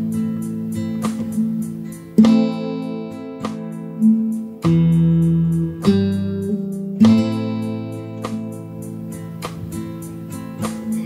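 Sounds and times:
backing track: 0.0 - 11.0
guitar plucking bass line and chord: 0.0 - 11.0.

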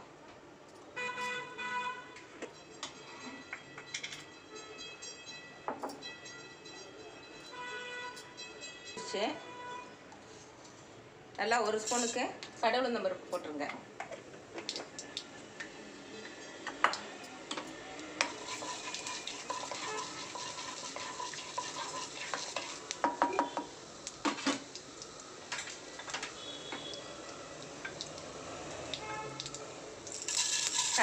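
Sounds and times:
seeds sizzling in hot oil: 11.8 - 12.4, 18.0 - 31.0
metal spoon clinking on pan: 17.5 - 24.7, 30.0 - 31.0.

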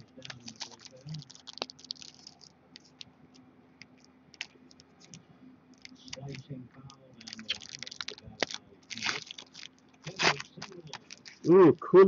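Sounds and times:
foil wrapper crinkling and tearing: 0.0 - 3.1, 7.2 - 11.6.

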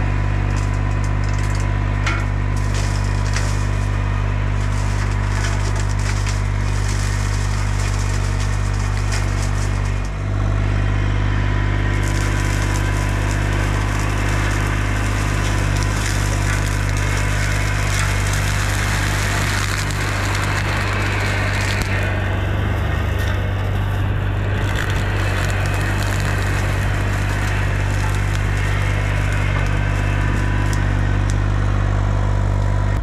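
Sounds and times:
excavator diesel engine: 0.0 - 33.0
mower shredding wood: 0.0 - 33.0.

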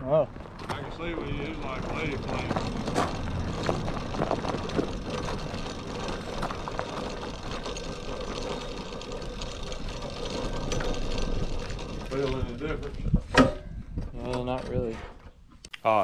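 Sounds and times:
small engine running: 0.7 - 13.0.

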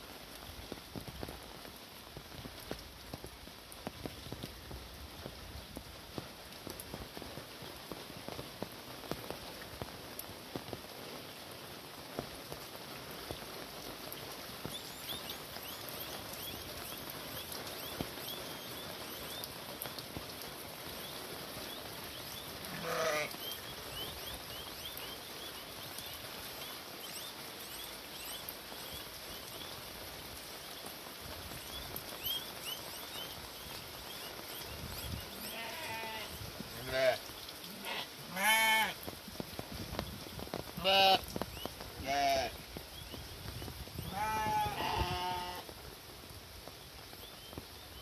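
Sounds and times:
steady rain: 0.0 - 48.0
livestock bleat: 22.7 - 23.3, 35.4 - 39.0, 42.0 - 42.6, 44.1 - 45.7.

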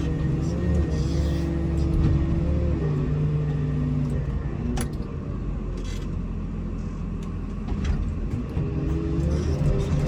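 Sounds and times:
plow scraping: 0.0 - 4.2, 7.6 - 10.0
loader engine rumble: 0.0 - 10.0.

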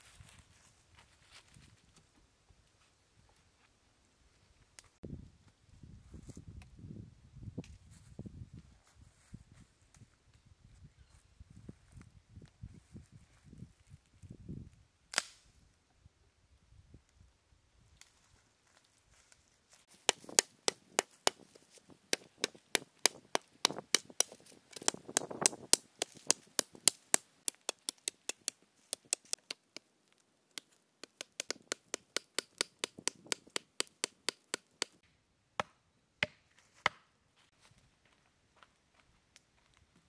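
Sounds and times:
knife chopping wooden stick: 20.0 - 29.9, 30.6 - 35.0.

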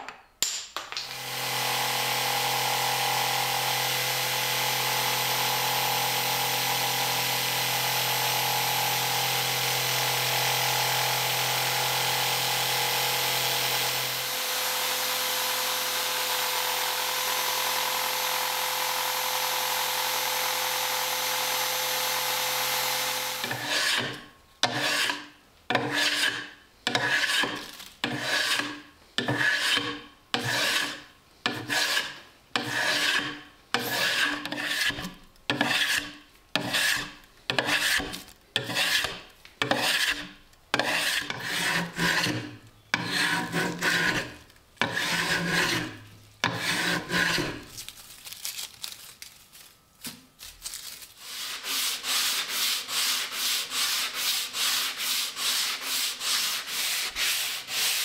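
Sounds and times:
scraping strokes on wood: 22.8 - 47.7, 51.2 - 58.0.

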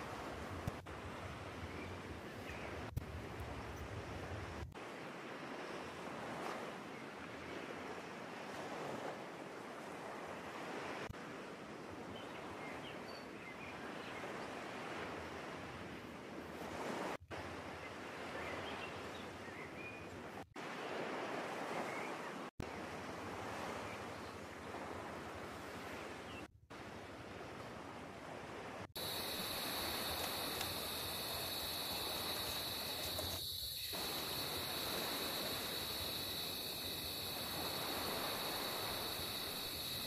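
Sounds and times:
ocean surf washing on beach: 0.0 - 11.7, 20.4 - 40.0.

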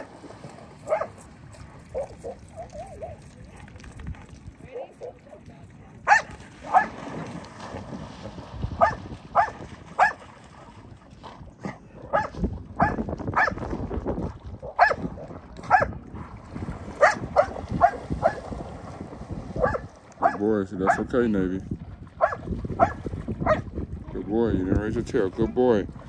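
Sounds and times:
dog barking: 0.8 - 1.2, 6.0 - 6.9, 8.8 - 10.2, 11.6 - 13.6, 14.6 - 15.0, 15.7 - 15.9, 17.0 - 18.4, 19.6 - 21.1, 22.2 - 23.6.

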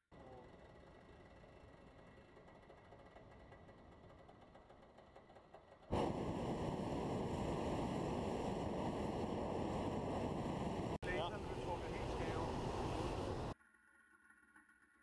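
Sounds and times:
propane burner roaring: 5.8 - 13.6.

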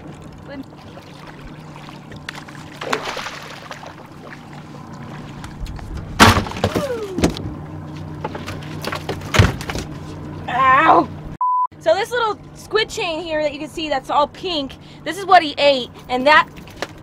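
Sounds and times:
outboard motor running: 0.0 - 17.0
fish splashing at surface: 0.8 - 5.4
fish thumping on deck: 2.3 - 3.8, 6.0 - 7.4.

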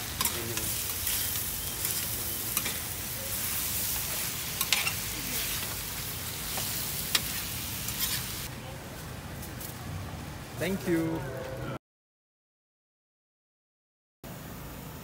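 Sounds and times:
spatulas scraping hot plate: 0.0 - 5.8, 6.5 - 8.5
meat sizzling on griddle: 0.0 - 8.5.

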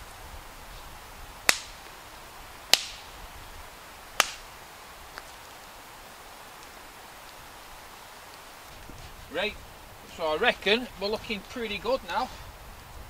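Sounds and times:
stick snapping: 1.5 - 1.8, 2.7 - 3.1, 4.2 - 4.5.

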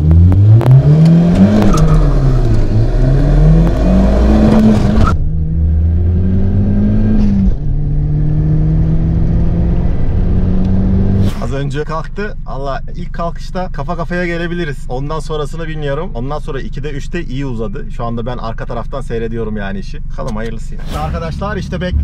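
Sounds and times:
car engine revving: 0.0 - 11.5
steady engine drone: 15.8 - 22.0.

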